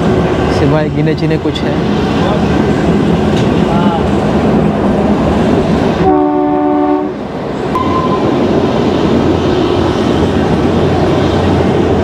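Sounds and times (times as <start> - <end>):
train rolling rumble: 0.0 - 12.0
train horn chord: 6.0 - 7.2.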